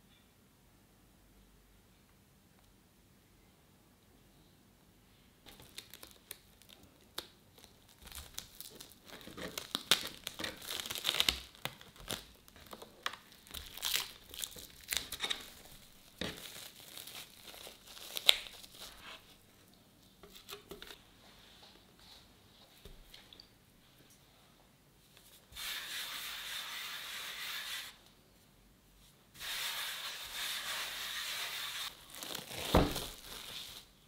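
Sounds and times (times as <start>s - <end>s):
plastic cling film crinkling: 5.5s - 19.5s, 31.3s - 34.0s.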